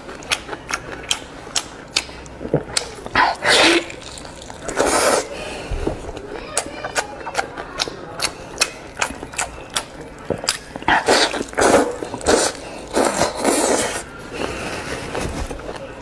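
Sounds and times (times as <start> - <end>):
lip smacks and chewing: 0.0 - 5.3, 6.2 - 14.0
slurping and sucking: 3.1 - 5.6, 10.8 - 14.1.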